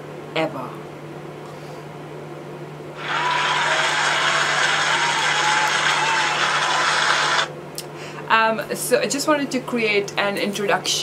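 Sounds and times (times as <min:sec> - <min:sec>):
crowd applause: 0:03.0 - 0:07.5
crowd cheering: 0:03.0 - 0:07.5.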